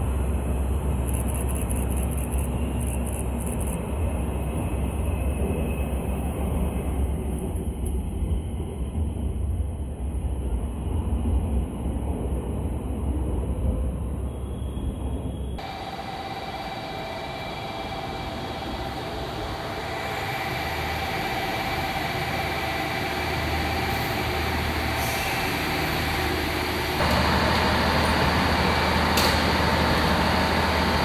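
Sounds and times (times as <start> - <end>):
diesel railcar engine idling: 15.6 - 31.0.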